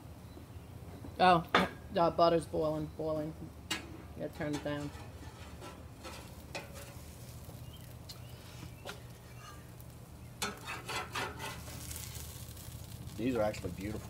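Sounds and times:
light sizzling: 1.6 - 14.0
metal spatula scraping grill grate: 3.7 - 14.0.

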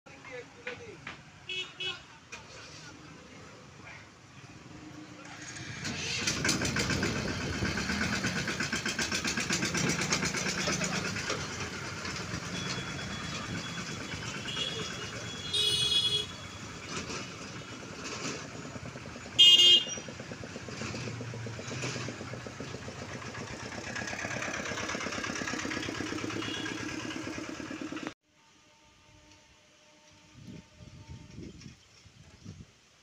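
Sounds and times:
motorcycle engines: 0.1 - 28.2
road traffic: 0.1 - 32.6
vehicle horn honks: 1.5 - 2.2, 12.4 - 16.7, 19.4 - 20.1, 26.2 - 27.3
engine pulsing: 5.2 - 15.5, 17.5 - 28.2.

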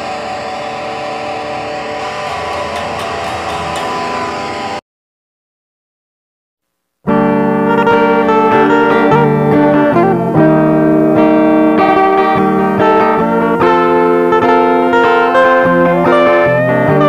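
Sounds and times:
electric guitar melody: 0.0 - 4.8, 7.0 - 17.0.

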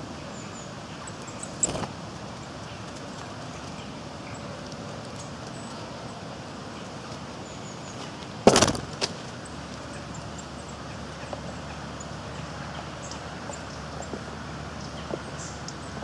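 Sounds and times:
steady outdoor background: 0.0 - 16.0
bird wing flutter: 1.6 - 2.0, 8.4 - 9.3.

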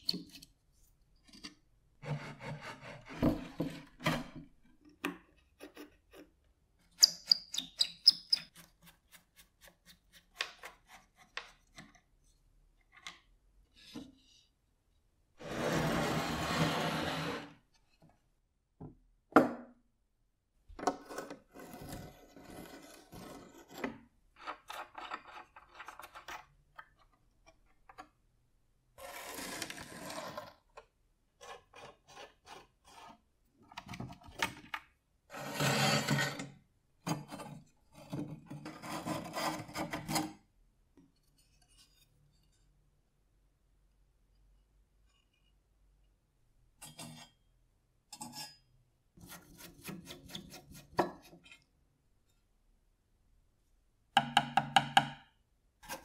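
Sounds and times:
wood scraping and sliding: 15.4 - 17.5.

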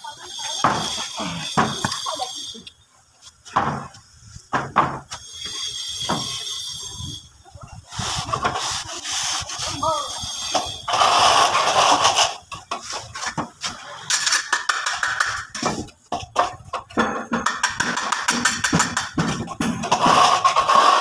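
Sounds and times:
trowel scraping cement: 7.9 - 16.3, 17.5 - 21.0.

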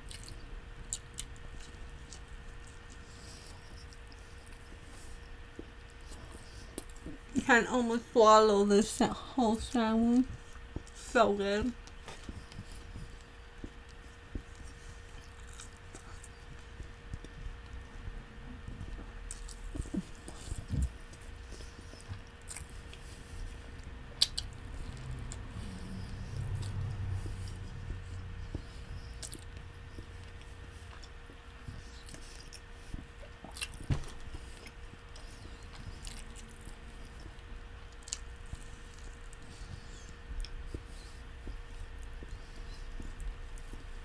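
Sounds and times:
close chewing mouth noises: 0.0 - 7.5, 9.0 - 44.0
lip and tongue clicks: 24.2 - 25.4.

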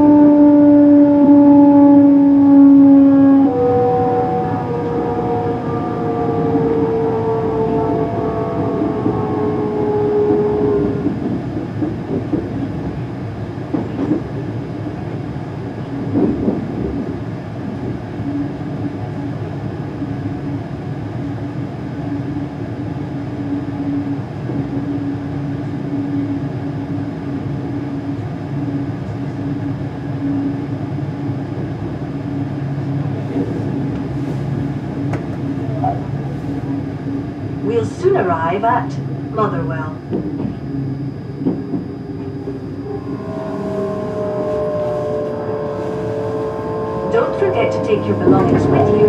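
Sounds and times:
train wheels rumbling on rail: 0.0 - 49.0
steady hum: 32.2 - 49.0.

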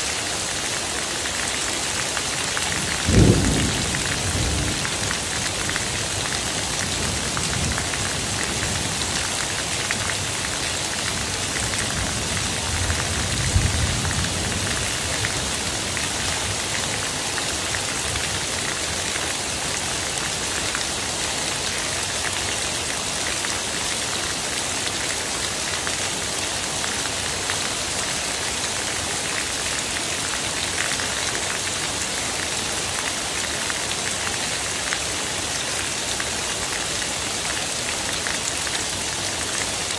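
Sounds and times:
heavy rain on pavement and foliage: 0.0 - 39.9
roof runoff splashing on pavement: 0.3 - 21.0.

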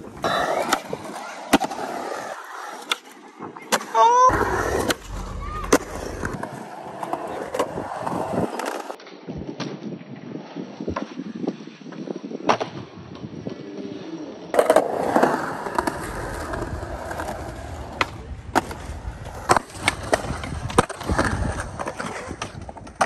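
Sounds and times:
skateboard wheels rolling on concrete: 0.0 - 23.0
skateboard clacks: 14.5 - 23.0.

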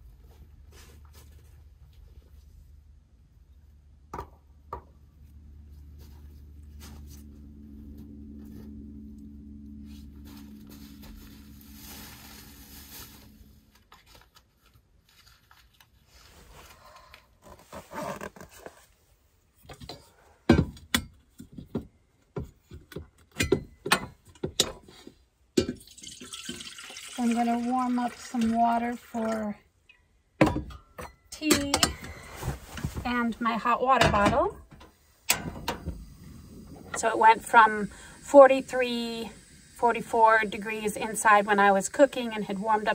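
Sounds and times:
low steady hum: 0.0 - 14.4, 25.6 - 42.9
household items knocking and clattering: 19.6 - 26.0, 30.4 - 33.0.

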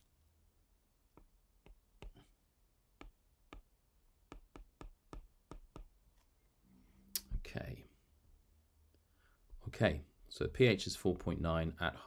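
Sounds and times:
stylus tapping a tablet screen: 1.1 - 2.3, 2.9 - 6.0.

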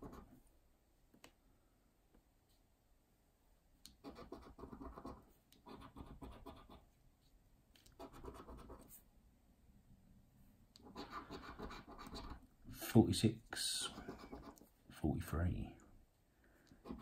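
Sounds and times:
coin scratching a scratchcard: 4.0 - 6.8, 7.9 - 8.9, 10.8 - 12.4, 13.9 - 14.7.

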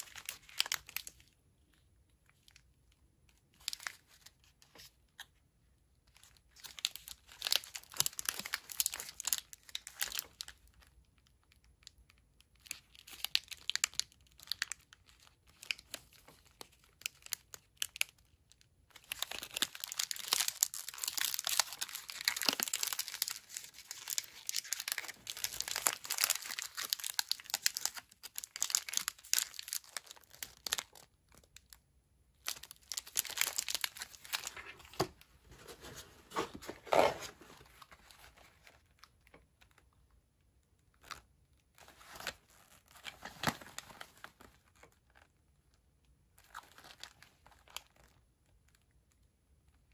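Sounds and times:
foil wrapper crinkling: 18.9 - 31.4, 32.5 - 38.8.

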